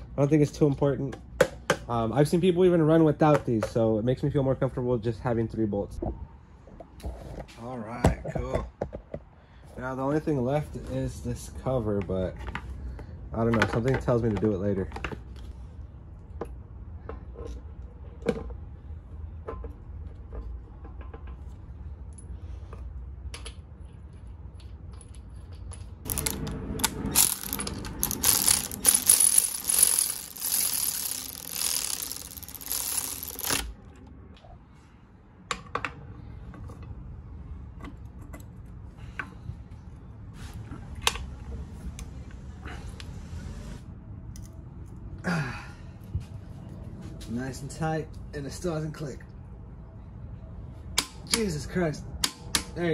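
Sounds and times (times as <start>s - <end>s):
tools clicking and clanking: 24.4s - 33.7s
cordless electric ratchet whirring: 26.1s - 26.5s, 27.1s - 33.7s.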